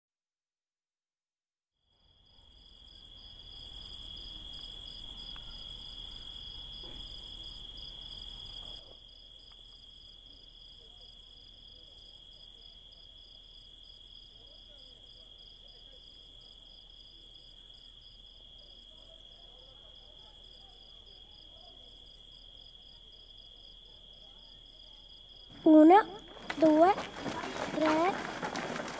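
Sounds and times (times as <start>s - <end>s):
insects chirring: 25.1s - 28.9s.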